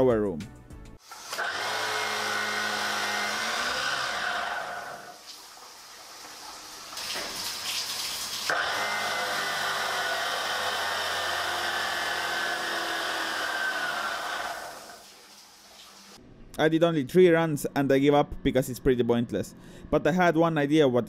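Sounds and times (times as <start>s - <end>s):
electric motors whining: 1.0s - 5.2s, 8.5s - 15.0s.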